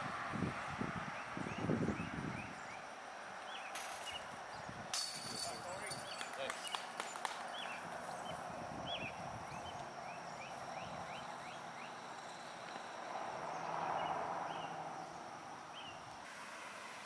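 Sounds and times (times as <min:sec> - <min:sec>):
soft outdoor background hiss: 0:00.0 - 0:17.0
bird chirping: 0:05.6 - 0:16.1.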